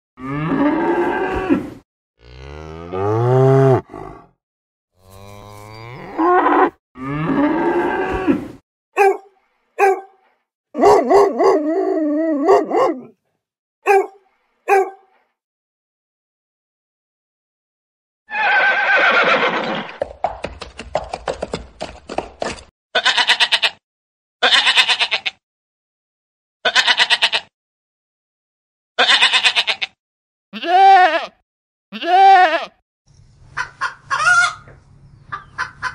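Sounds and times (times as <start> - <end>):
cow grunt: 0.2 - 4.4
cows mooing: 2.2 - 4.3, 5.0 - 8.4
horse whinnying: 18.3 - 20.0
goat bleating: 23.0 - 23.8, 24.4 - 25.4, 26.6 - 27.5, 29.0 - 30.0, 30.6 - 32.7
sheep bleating: 23.0 - 23.8, 24.4 - 25.4, 26.6 - 27.5, 29.0 - 30.0, 30.6 - 32.7.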